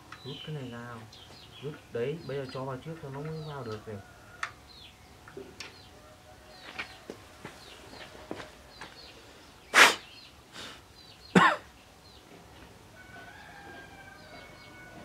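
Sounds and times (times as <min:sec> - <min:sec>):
person coughing: 0:11.4 - 0:11.7.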